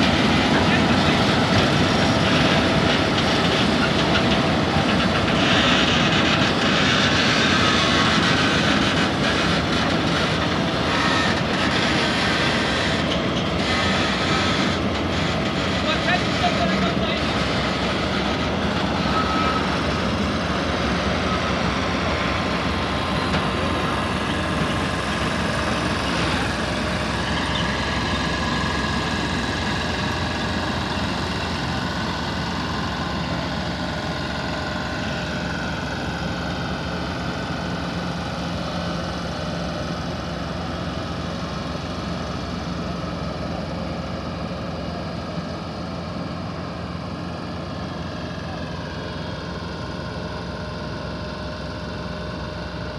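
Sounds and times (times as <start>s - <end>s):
truck diesel engine running: 0.0s - 52.9s.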